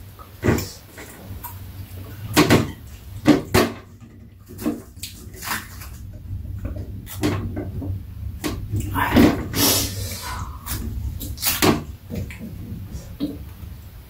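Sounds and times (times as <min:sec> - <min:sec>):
eating sounds: 0:08.8 - 0:13.4.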